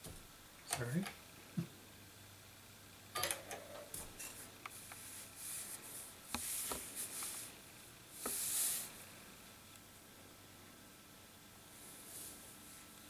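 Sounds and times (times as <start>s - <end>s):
floppy drive hissing and scraping: 3.6s - 9.4s.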